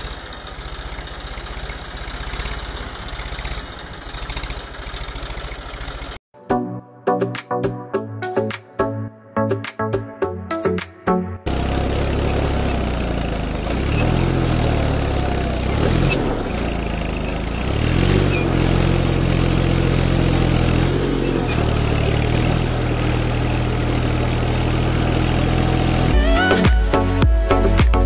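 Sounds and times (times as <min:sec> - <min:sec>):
tractor engine revving: 0:00.0 - 0:06.2, 0:11.5 - 0:26.6.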